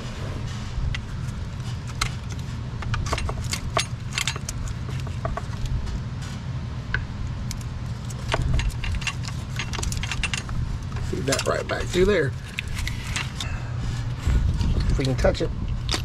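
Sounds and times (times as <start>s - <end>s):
low background rumble: 0.0s - 16.0s
connector clicks and clinks: 1.9s - 5.7s, 7.4s - 13.5s.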